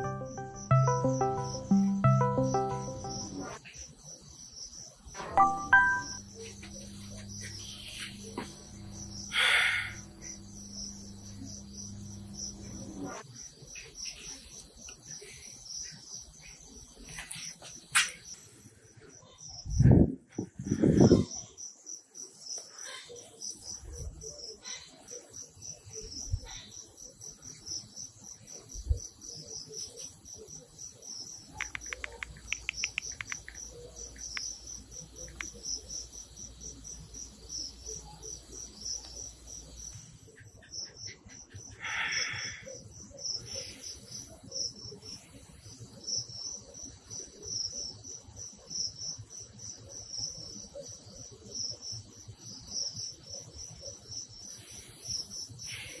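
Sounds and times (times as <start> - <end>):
crickets chirping: 0.0 - 56.0
phone keyboard taps: 31.6 - 33.6.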